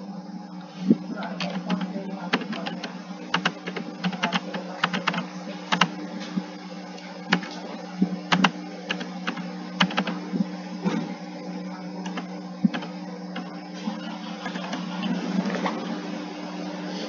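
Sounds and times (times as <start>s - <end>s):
steady low hum: 0.0s - 17.0s
keyboard keys tapping: 1.4s - 5.9s, 8.3s - 10.2s, 12.1s - 13.5s.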